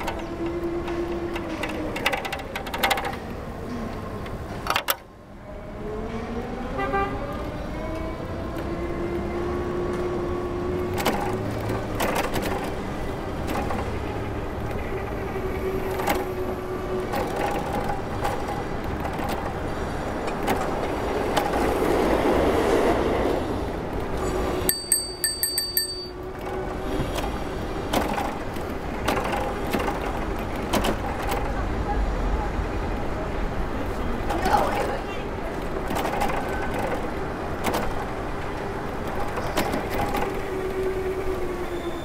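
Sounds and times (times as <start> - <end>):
knocks and clatters: 0.0 - 3.3
passing vehicles: 0.0 - 42.0
high metallic ringing: 24.7 - 26.2.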